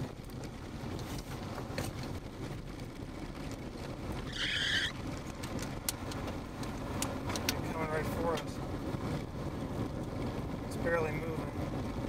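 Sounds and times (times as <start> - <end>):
gravel ticks: 0.0 - 12.0
road rumble inside car: 0.0 - 12.0
hissing screech: 4.3 - 5.0.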